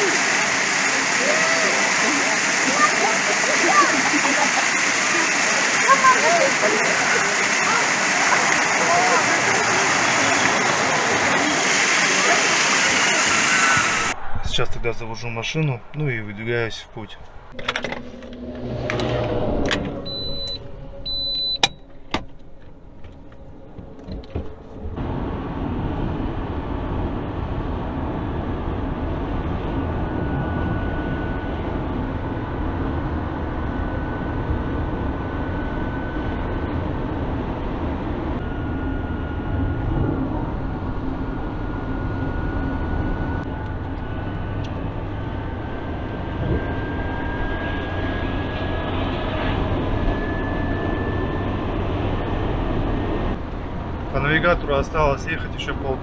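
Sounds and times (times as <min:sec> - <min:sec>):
faint rising whine: 0:00.0 - 0:56.0
car engine and road noise: 0:15.1 - 0:56.0.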